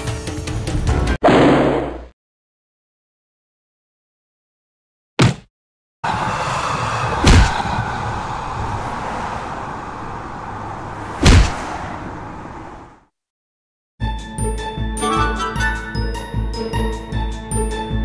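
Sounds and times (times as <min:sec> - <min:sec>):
steady cartoon noise: 0:06.0 - 0:11.5
heavy slams: 0:06.1 - 0:08.8, 0:10.8 - 0:12.0.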